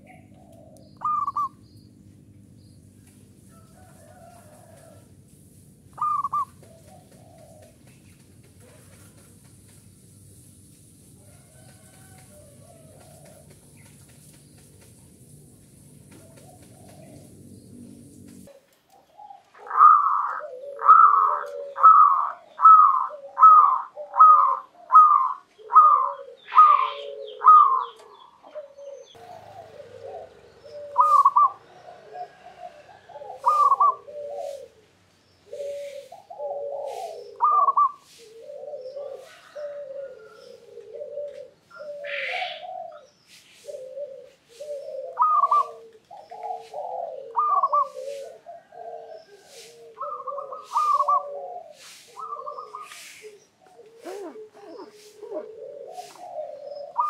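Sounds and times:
dove cooing: 0.0 - 1.6, 5.8 - 9.7, 11.3 - 14.3, 15.7 - 57.0.

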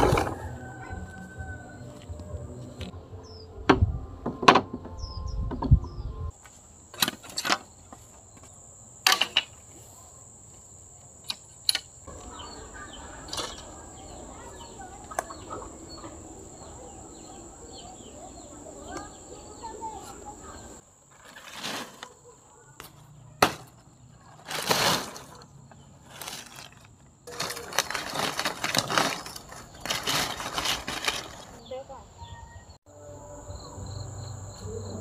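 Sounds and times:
high insect whine: 6.3 - 21.0, 32.2 - 35.0
birds chirping: 11.3 - 20.8, 27.4 - 32.8.

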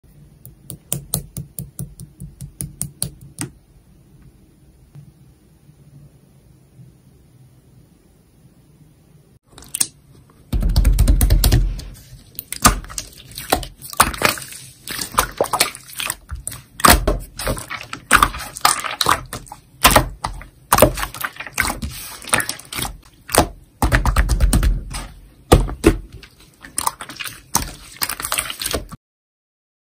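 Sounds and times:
deep slime squelches: 11.4 - 29.0.

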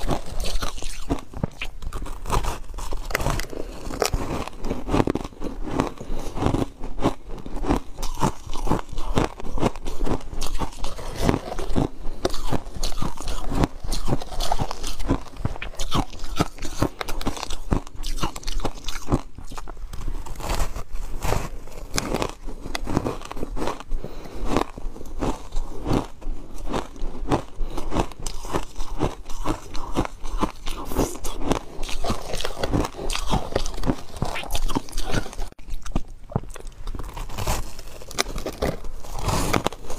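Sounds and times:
ice crunching in mouth: 0.0 - 39.9.

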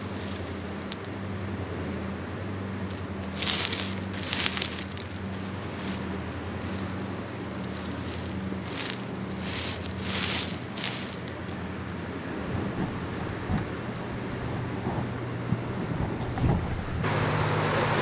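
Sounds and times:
pebbles crunching and rattling: 0.0 - 1.8, 2.8 - 7.0, 7.6 - 12.8.

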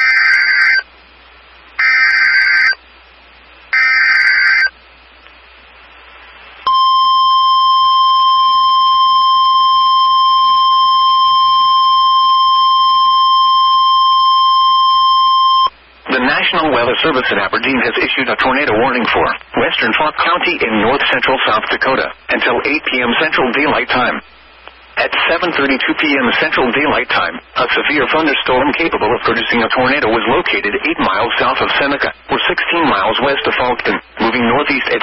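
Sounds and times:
steady warning alarm tone: 1.8 - 2.8, 3.8 - 4.7, 6.7 - 15.7
warbling data tones: 3.7 - 4.7.

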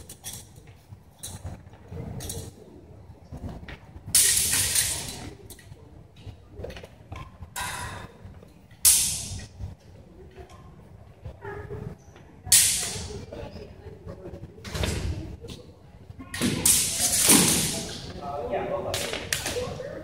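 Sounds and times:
sword blades clashing: 8.8 - 9.4, 12.5 - 13.0.

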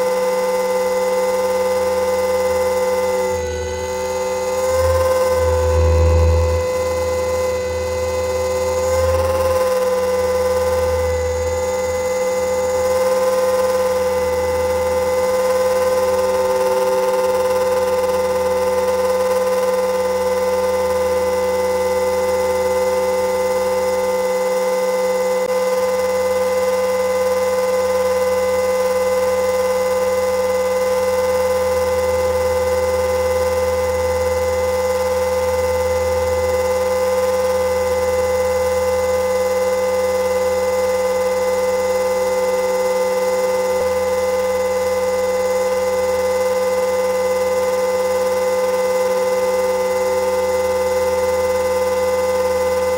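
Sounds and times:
electric motor whine: 0.0 - 52.9
wavering rotor hum: 0.0 - 52.9.

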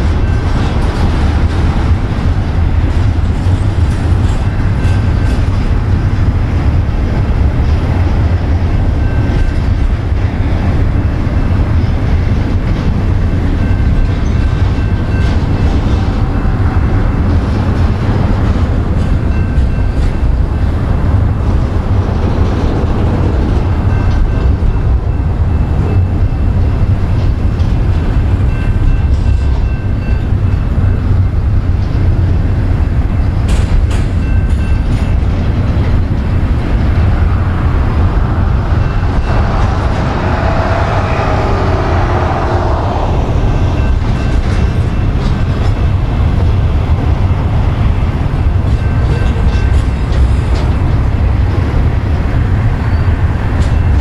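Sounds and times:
train wheels rumbling and rattling: 0.0 - 54.0
whining tone: 37.9 - 45.2.

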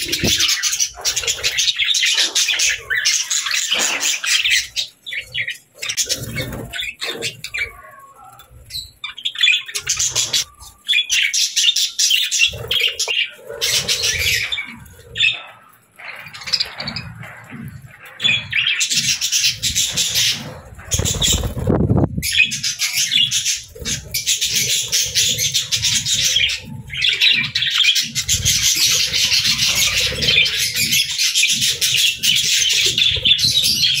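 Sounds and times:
budgerigars chattering: 8.7 - 34.0.

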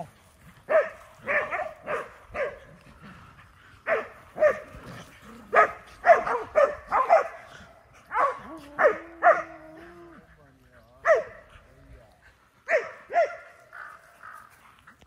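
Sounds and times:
dog barking: 0.7 - 2.7, 3.9 - 4.7, 5.5 - 7.4, 8.1 - 9.6, 11.0 - 11.4, 12.7 - 13.9.

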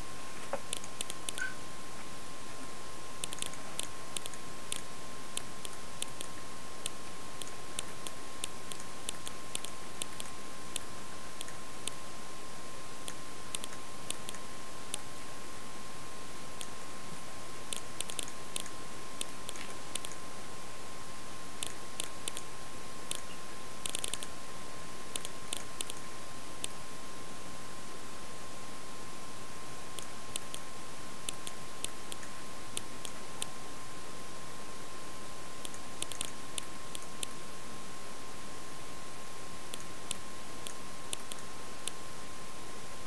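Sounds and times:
steady hiss: 0.0 - 43.0
computer mouse clicking: 0.6 - 1.6, 3.2 - 12.0, 13.0 - 15.1, 17.7 - 20.2, 21.6 - 22.5, 23.1 - 24.3, 25.1 - 26.8, 30.0 - 30.7, 31.3 - 33.5, 35.6 - 37.4, 39.7 - 42.0.

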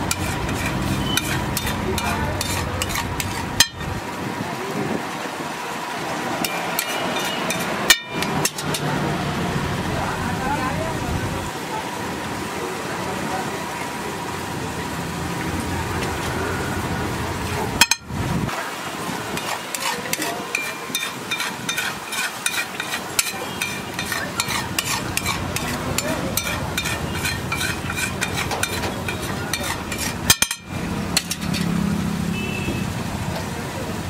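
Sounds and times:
metal spatula scraping griddle: 0.0 - 4.0, 6.4 - 9.0, 19.3 - 31.9
batter sizzling on griddle: 0.0 - 10.9, 16.0 - 34.0.

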